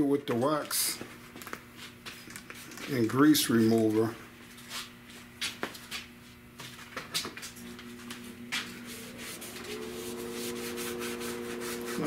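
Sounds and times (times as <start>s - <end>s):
steady low hum: 0.9s - 12.0s
towel rubbing on vinyl: 7.9s - 12.0s.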